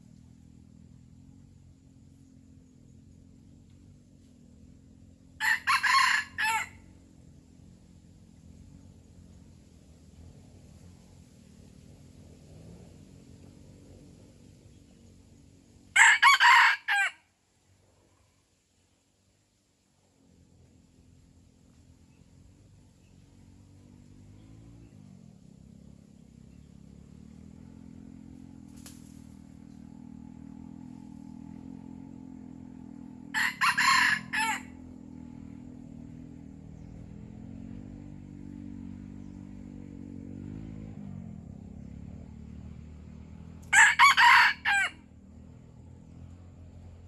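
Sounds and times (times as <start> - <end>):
faint low hum: 0.0 - 47.0
rooster crowing: 5.4 - 6.9, 15.9 - 17.2, 33.3 - 34.8, 43.7 - 45.1.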